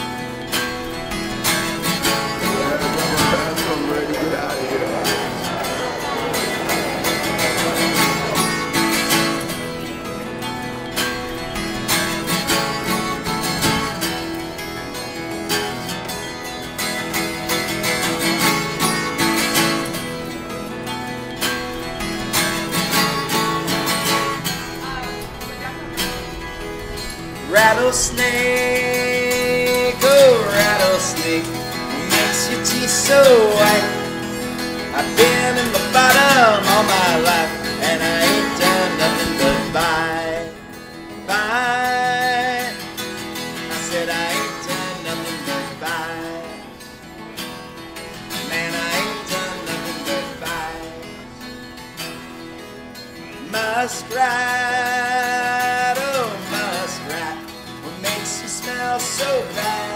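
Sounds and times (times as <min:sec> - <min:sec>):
wavering melody: 0:00.0 - 0:41.8
acoustic guitar music: 0:00.0 - 0:59.9.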